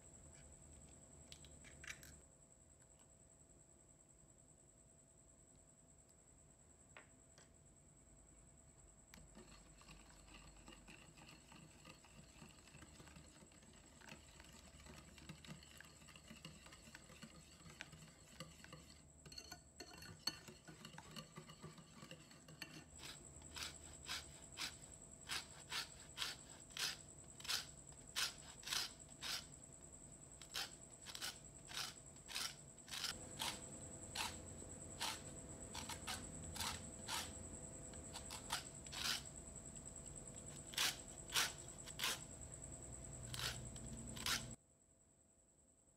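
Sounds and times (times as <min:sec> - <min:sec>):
whisk stirring in glass bowl: 0:09.2 - 0:29.5, 0:30.4 - 0:37.4
lemon rasping on metal grater: 0:09.2 - 0:29.6, 0:30.4 - 0:39.4, 0:40.4 - 0:42.4, 0:43.1 - 0:44.6.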